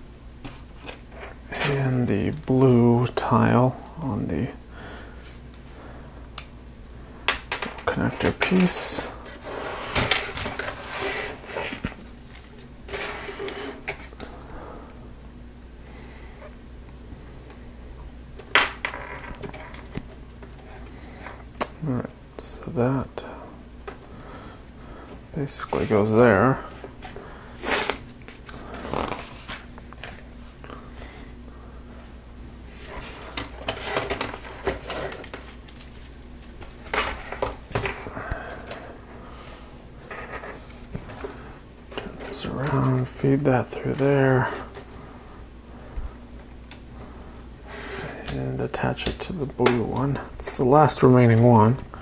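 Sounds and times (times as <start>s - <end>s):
plastic parts clicking and rattling: 33.0s - 38.0s.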